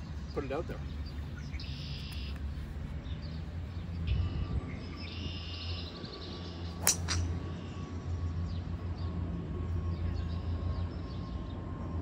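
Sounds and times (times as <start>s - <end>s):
golf club striking ball: 6.8s - 7.3s.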